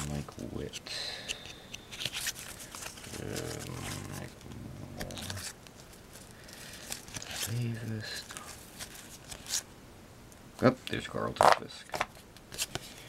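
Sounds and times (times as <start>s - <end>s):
cards flipped and slid: 0.0s - 4.3s, 4.9s - 9.7s, 11.4s - 13.0s
man murmuring: 3.1s - 5.5s.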